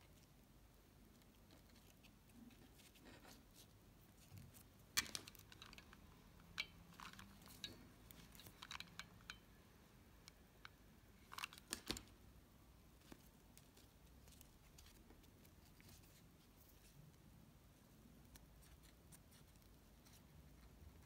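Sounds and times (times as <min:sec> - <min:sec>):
hands handling small craft items: 0:12.9 - 0:21.0.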